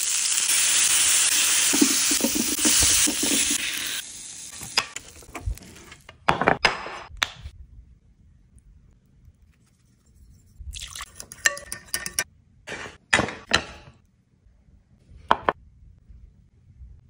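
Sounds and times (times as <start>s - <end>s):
dishes clinking: 11.2s - 14.0s.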